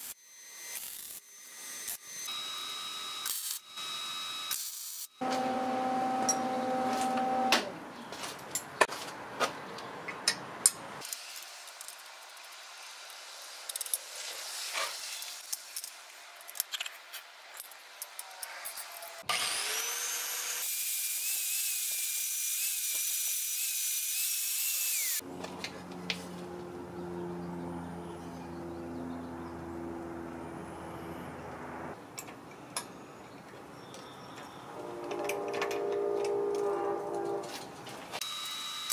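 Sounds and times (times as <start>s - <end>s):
angle grinder whining: 0.0s - 7.8s, 18.3s - 25.8s, 38.2s - 38.9s.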